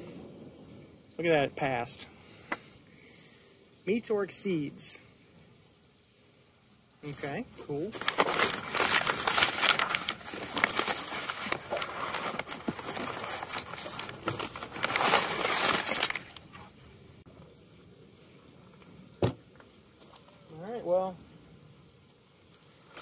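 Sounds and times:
packaging crinkling and tearing: 7.8s - 16.6s.

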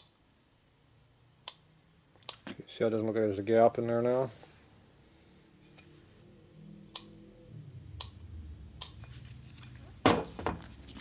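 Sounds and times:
metal knock and scrape on workbench: 10.0s - 10.7s.

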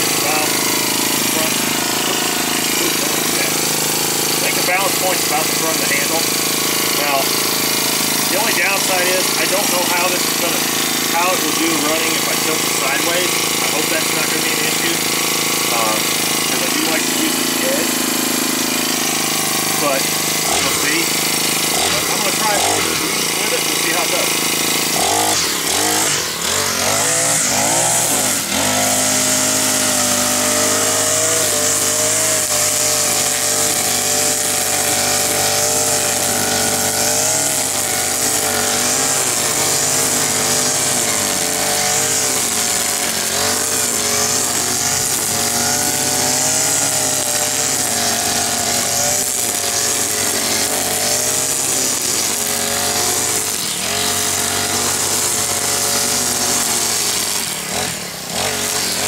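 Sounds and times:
string trimmer engine: 0.0s - 59.0s
trimmer line cutting grass: 0.0s - 59.0s.

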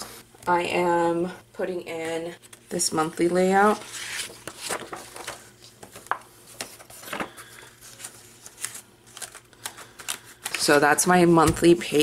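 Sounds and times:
paper pages rustling and clicking: 3.6s - 10.8s.

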